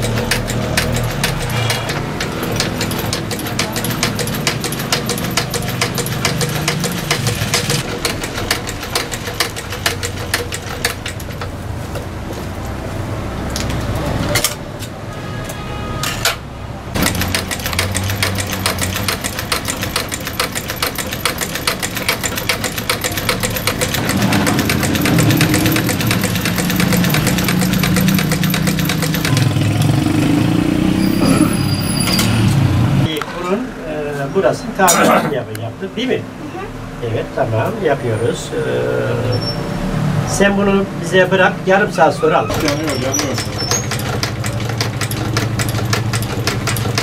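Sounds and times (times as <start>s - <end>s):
sewing machine needle clattering: 0.0s - 11.5s, 17.0s - 29.9s, 42.5s - 47.0s
low engine sound: 23.3s - 31.4s.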